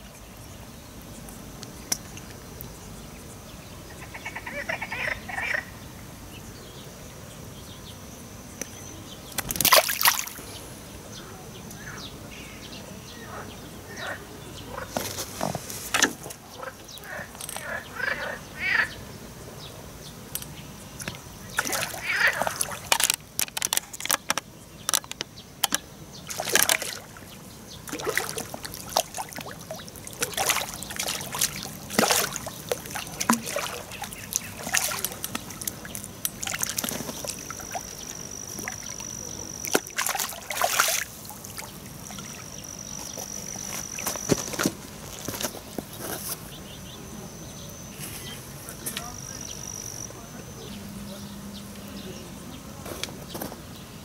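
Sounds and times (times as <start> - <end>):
fish splashing at water surface: 9.4 - 10.5, 21.0 - 44.8.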